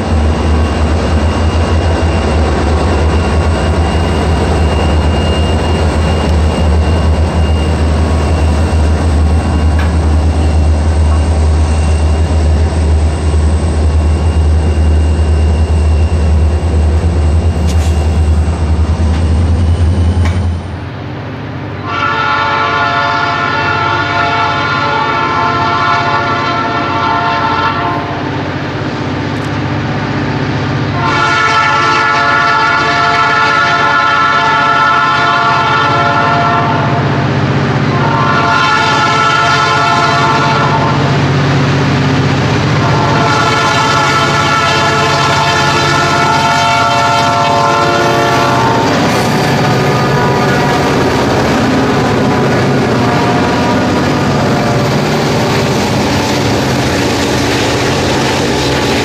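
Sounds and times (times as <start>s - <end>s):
train wheels rolling on rails: 0.0s - 22.0s, 24.4s - 59.0s
diesel locomotive engines running: 0.0s - 59.0s
locomotive air horn blasts: 21.8s - 28.2s, 30.9s - 37.1s, 37.9s - 41.2s, 42.8s - 51.0s, 53.0s - 54.0s.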